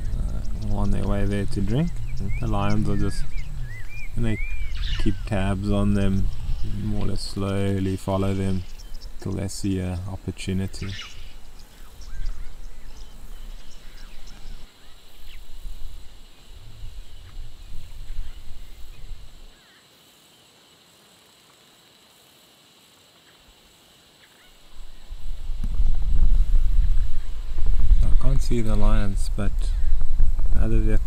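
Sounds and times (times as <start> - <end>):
wind buffeting microphone: 0.0 - 19.5, 24.6 - 31.0
faint bird calls: 0.0 - 19.9, 24.1 - 25.6.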